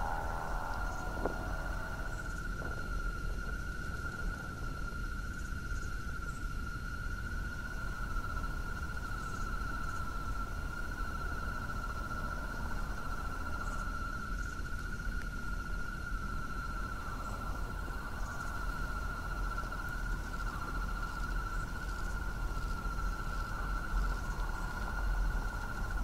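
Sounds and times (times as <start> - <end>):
low rumble: 0.0 - 4.2
high-pitched insect-like trill: 0.0 - 26.0.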